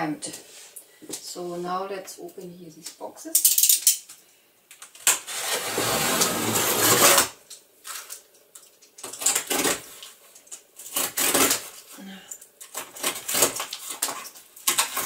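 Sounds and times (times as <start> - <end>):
cardboard rasping: 5.1 - 7.4, 9.2 - 9.9, 10.9 - 11.8, 12.8 - 15.0.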